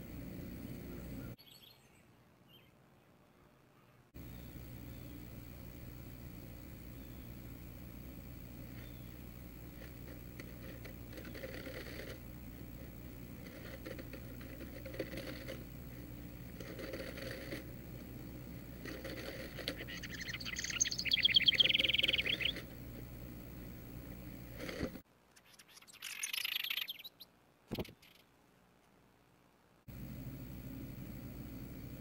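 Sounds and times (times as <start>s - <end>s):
low electrical hum: 0.0s - 32.0s
wren singing rapid high notes: 19.8s - 22.7s, 25.4s - 27.3s.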